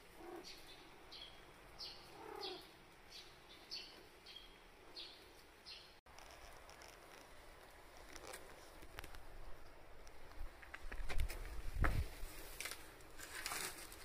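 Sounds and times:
bird chirping: 0:00.2 - 0:06.0.

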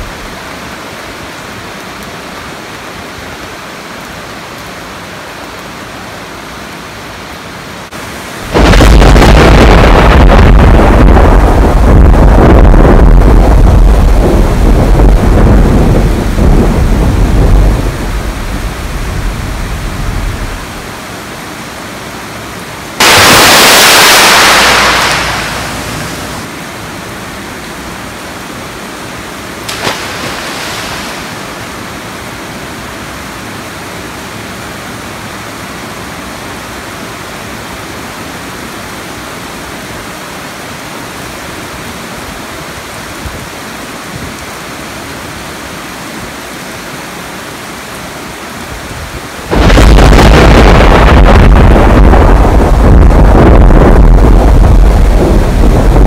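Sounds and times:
steady rain: 0:00.0 - 0:56.0
loud thunderclap: 0:08.4 - 0:18.3, 0:23.0 - 0:26.5, 0:49.5 - 0:56.0
thunder rumbling: 0:08.4 - 0:20.9, 0:23.0 - 0:26.5, 0:49.4 - 0:56.0.

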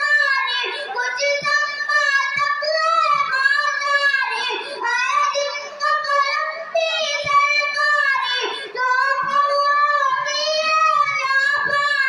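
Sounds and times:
boy singing: 0:00.0 - 0:12.0.

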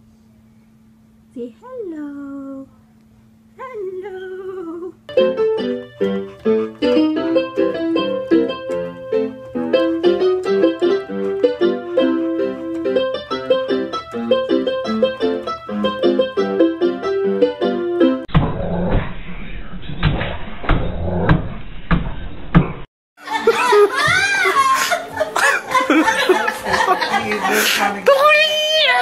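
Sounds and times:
electronic keyboard melody: 0:05.1 - 0:18.2.

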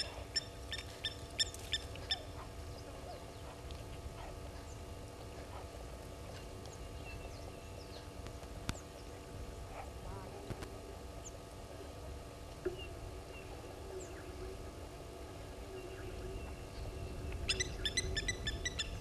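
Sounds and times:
lapwing metallic tink calls: 0:17.5 - 0:19.0.

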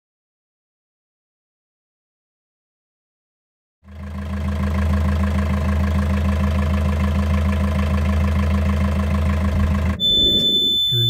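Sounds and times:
diesel engine idling: 0:03.9 - 0:10.7.

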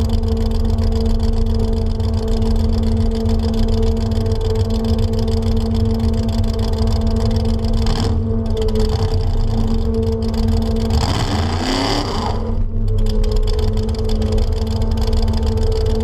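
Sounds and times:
pickup truck engine rumbling: 0:00.0 - 0:16.0.

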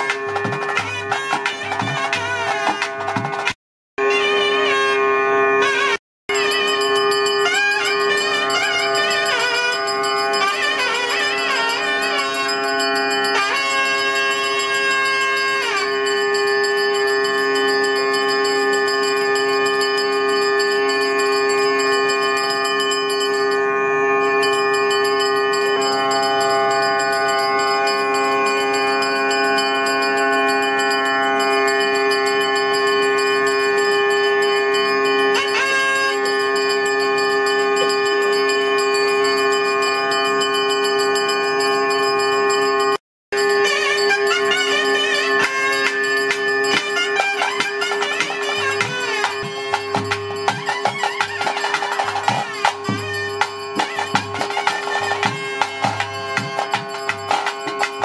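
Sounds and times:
bell ringing: 0:00.0 - 0:04.2, 0:06.3 - 0:58.0
wind instrument wavering melody: 0:00.0 - 0:58.0
steady drone: 0:43.4 - 0:58.0.

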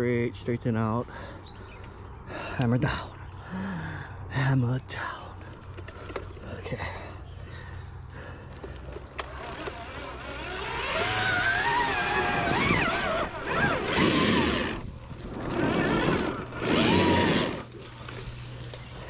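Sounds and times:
motorcycle engine revving: 0:08.6 - 0:19.0.

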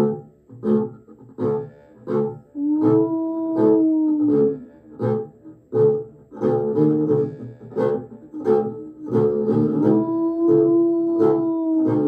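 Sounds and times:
long held low note: 0:02.5 - 0:05.2, 0:08.5 - 0:12.0.

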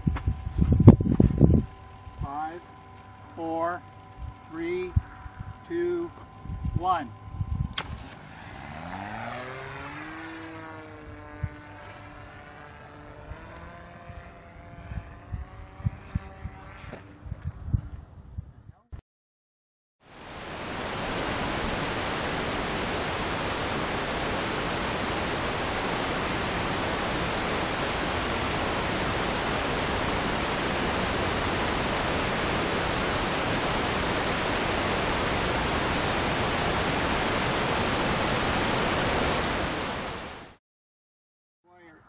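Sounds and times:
static hiss: 0:20.1 - 0:40.6.

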